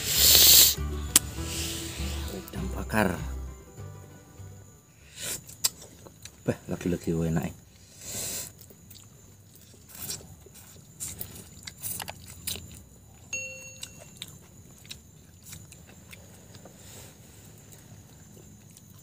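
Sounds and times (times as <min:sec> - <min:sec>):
short chime: 0:13.3 - 0:14.3.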